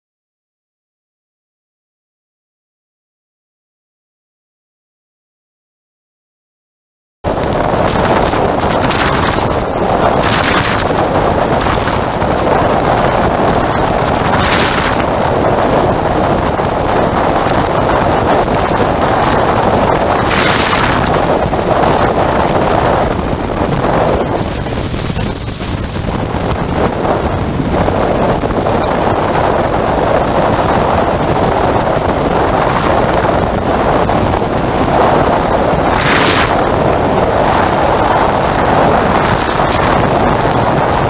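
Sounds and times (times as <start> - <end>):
wind rushing over microphone: 7.2 - 41.0
road noise: 7.3 - 41.0
motorcycle engine: 7.6 - 34.2.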